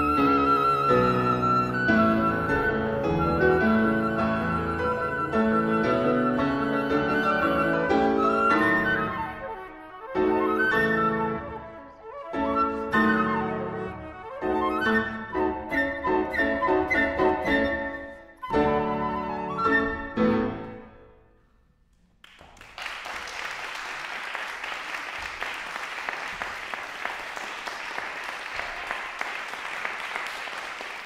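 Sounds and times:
flute: 0.0s - 21.0s
grand piano: 0.0s - 22.3s
audience applause: 22.2s - 31.0s.

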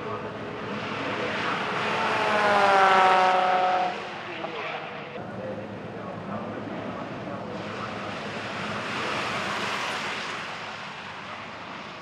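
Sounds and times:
race car passing: 0.0s - 5.2s.

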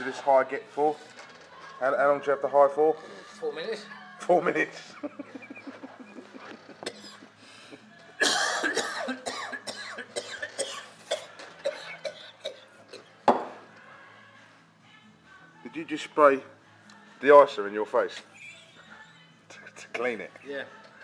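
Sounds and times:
man coughing and spluttering: 8.2s - 12.6s.

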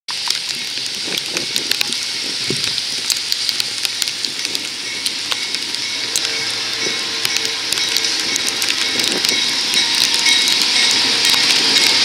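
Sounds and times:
steady rain hiss: 0.1s - 12.0s
raindrops tapping near microphone: 0.2s - 6.3s.

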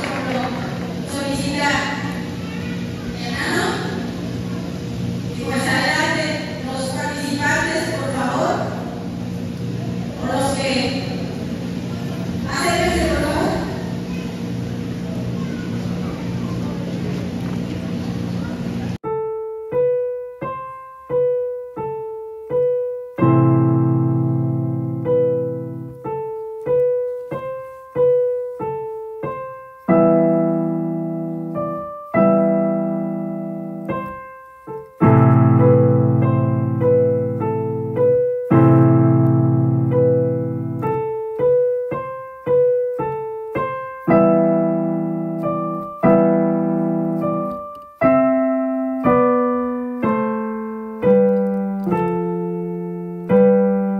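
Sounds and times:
solo piano music: 10.9s - 53.9s.

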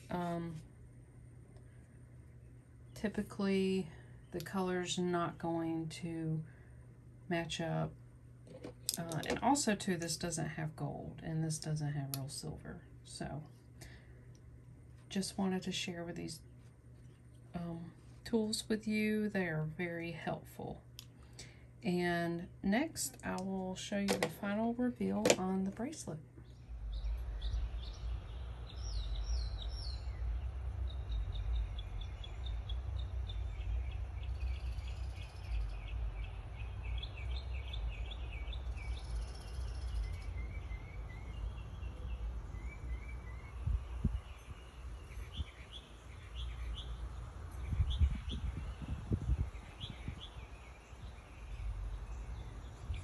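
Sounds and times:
steady low rumble: 22.5s - 53.0s
small birds chirping: 26.4s - 53.0s.

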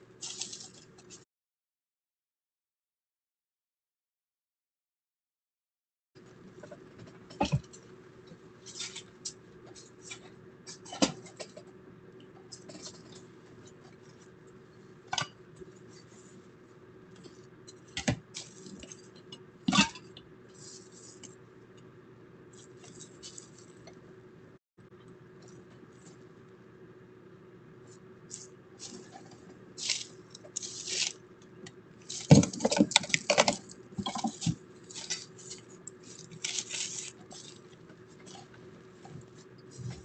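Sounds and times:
rustling and handling noise: 0.0s - 1.2s, 6.2s - 24.2s, 27.8s - 40.0s
steady low hum: 6.2s - 40.0s.

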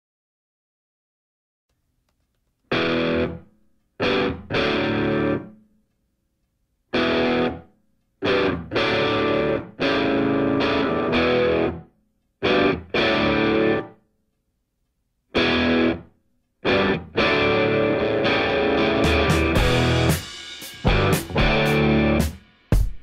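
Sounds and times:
distorted electric guitar chords: 2.7s - 3.4s, 4.0s - 5.5s, 6.9s - 11.8s, 12.4s - 14.0s, 15.3s - 22.4s.

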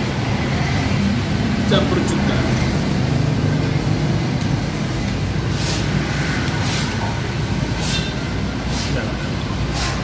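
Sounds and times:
road traffic rumble: 0.0s - 10.0s
hissing of passing vehicles: 4.8s - 10.0s.

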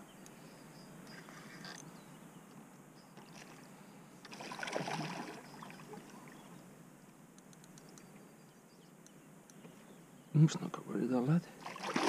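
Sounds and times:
faint water noise: 3.1s - 7.2s, 11.4s - 12.0s
fish splashing at water surface: 4.3s - 5.8s, 11.6s - 12.0s
light ticks: 7.4s - 8.1s.

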